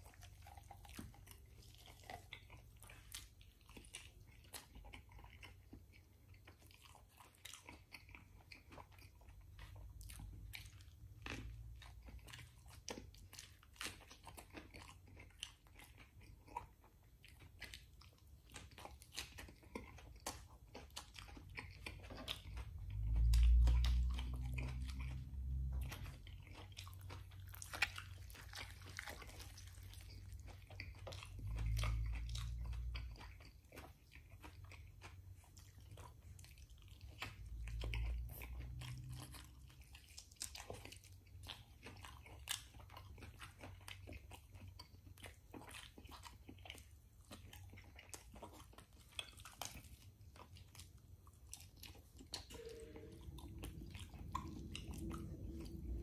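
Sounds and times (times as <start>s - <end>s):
chewing and biting chicken: 0.0s - 56.0s
wet mouth clicks and smacks: 0.0s - 56.0s
low rumbles: 52.5s - 56.0s.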